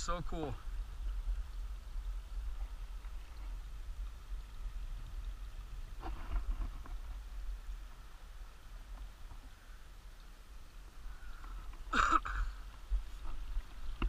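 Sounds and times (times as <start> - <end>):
wind buffeting microphone: 0.0 - 9.7.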